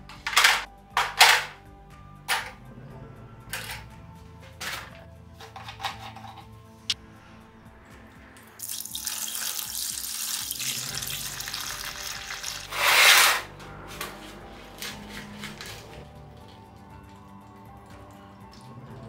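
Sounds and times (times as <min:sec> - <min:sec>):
liquid pouring and splashing: 0:08.6 - 0:12.8.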